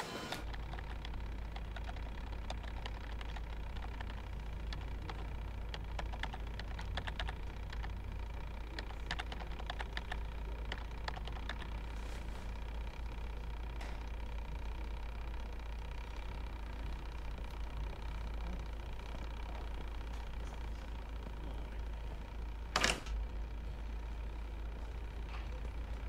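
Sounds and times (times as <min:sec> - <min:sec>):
steady low hum: 0:00.0 - 0:26.0
keyboard keystroke clicks: 0:00.3 - 0:08.0, 0:08.7 - 0:11.7.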